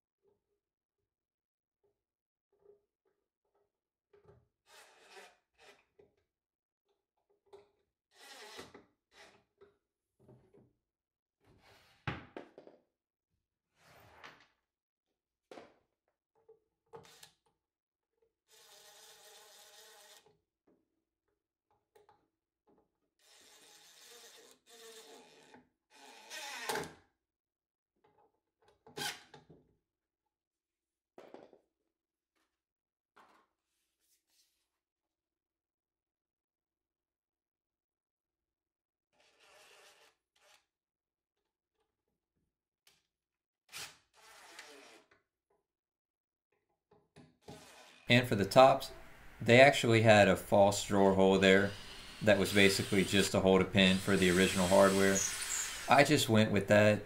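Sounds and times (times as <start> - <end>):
scraping or sliding sounds: 49.6 - 57.0.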